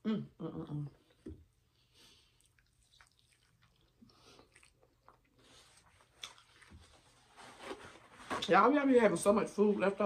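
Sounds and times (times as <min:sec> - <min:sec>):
chewing food: 0:02.0 - 0:07.1.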